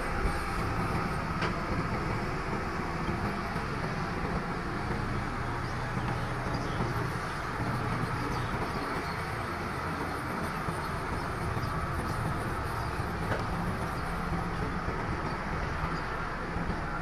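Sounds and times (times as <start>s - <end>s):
bulldozer diesel engine: 0.0s - 17.0s.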